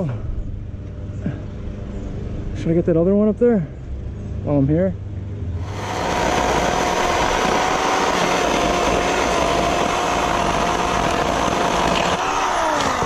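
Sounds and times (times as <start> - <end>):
chainsaw cutting wood: 5.6 - 13.0.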